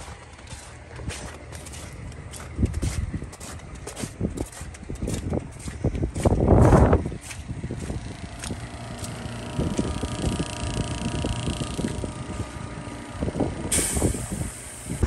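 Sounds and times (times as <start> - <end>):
compressor humming: 0.0 - 15.0
air hissing from hose: 13.7 - 15.0.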